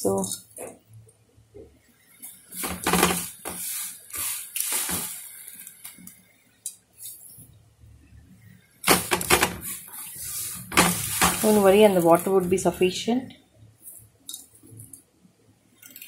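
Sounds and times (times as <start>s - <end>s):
dry noodles rustling: 2.6s - 5.8s, 8.9s - 12.7s.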